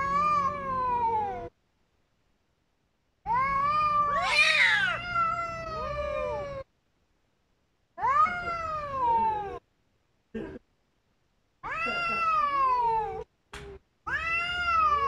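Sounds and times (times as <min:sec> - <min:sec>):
cats caterwauling: 0:00.0 - 0:01.5, 0:03.3 - 0:06.7, 0:08.0 - 0:09.6, 0:11.6 - 0:15.0
high-pitched cat cry: 0:00.0 - 0:01.5, 0:03.3 - 0:06.7, 0:08.0 - 0:09.6, 0:11.6 - 0:13.3, 0:14.1 - 0:15.0.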